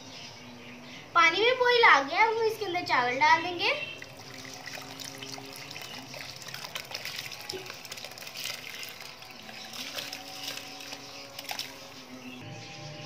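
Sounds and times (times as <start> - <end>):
water splashing and bubbling: 3.9 - 12.2
rice grains ticking: 4.1 - 12.0.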